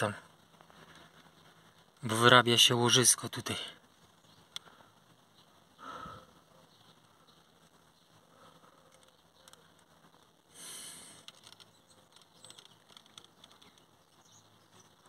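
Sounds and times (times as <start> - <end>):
soft hiss: 0.0 - 15.0
faint ticks: 4.3 - 5.5, 6.9 - 15.0.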